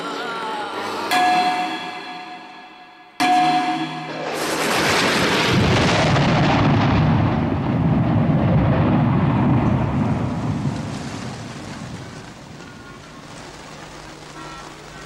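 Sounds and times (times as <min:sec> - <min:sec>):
explosion with deep rumbling roar: 0:03.9 - 0:13.1.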